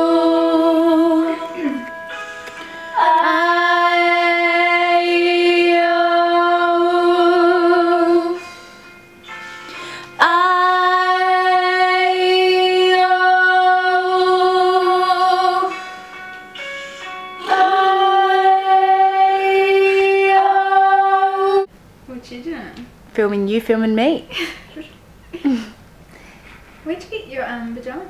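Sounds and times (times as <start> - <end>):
woman singing long notes: 0.0 - 1.9, 2.9 - 8.6, 10.2 - 15.8, 17.4 - 21.7.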